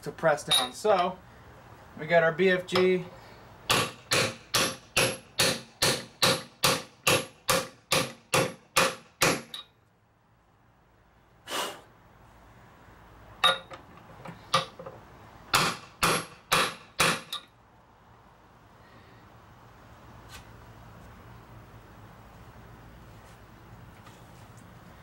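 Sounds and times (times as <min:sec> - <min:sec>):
sledgehammer striking steel: 0:03.7 - 0:09.7, 0:15.5 - 0:17.4.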